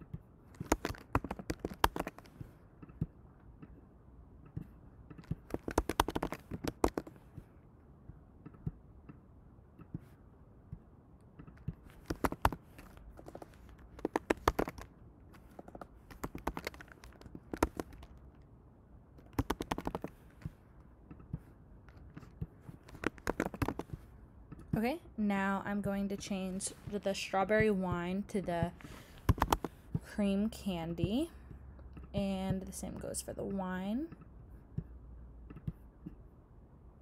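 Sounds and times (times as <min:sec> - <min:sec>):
keyboard key clicks: 0:00.6 - 0:03.0, 0:04.4 - 0:07.1, 0:11.4 - 0:14.9, 0:15.6 - 0:18.1, 0:19.2 - 0:20.1, 0:29.2 - 0:29.7.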